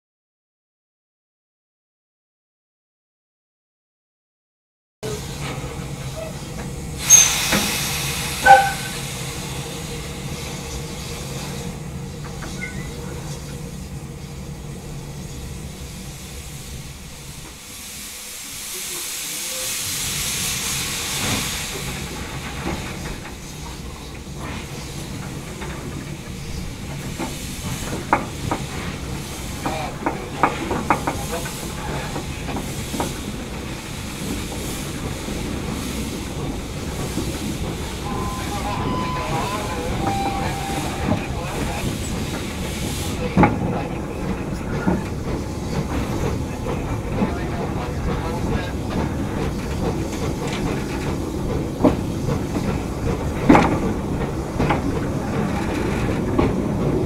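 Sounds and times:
steam locomotive hissing: 5.0 - 57.0.

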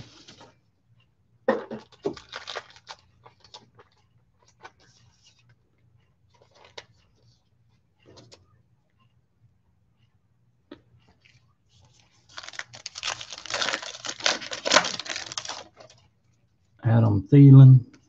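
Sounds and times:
card packaging rustling and clicking: 1.7 - 5.0, 6.4 - 7.0, 11.2 - 16.0.

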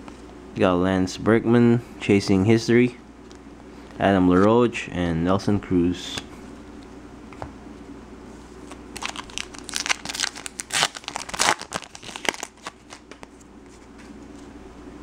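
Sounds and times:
wrapper torn and crinkled: 8.6 - 13.2.

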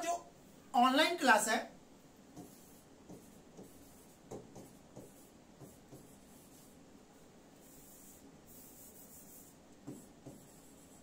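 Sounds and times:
stylus scratching and tapping screen: 2.3 - 6.8, 7.6 - 11.0.

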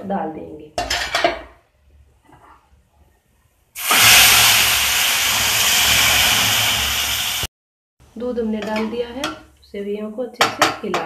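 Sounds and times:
milk hissing in hot pan: 3.8 - 7.5.

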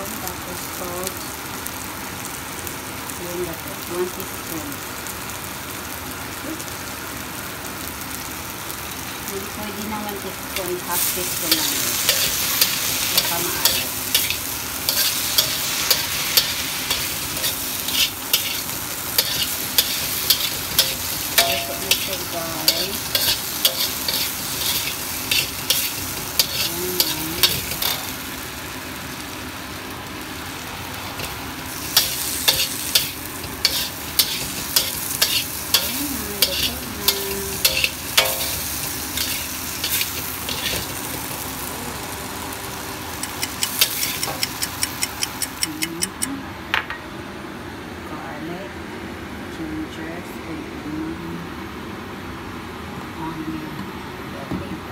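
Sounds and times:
vegetables sizzling in a wok: 0.0 - 46.2
metal spatula scraping a wok: 11.0 - 28.1, 31.1 - 41.2, 43.6 - 45.4.

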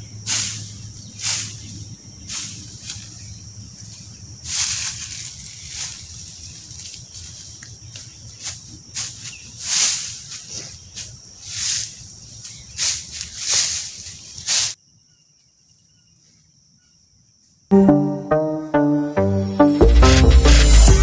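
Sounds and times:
dry leaves rustling and crunching: 0.3 - 14.8.

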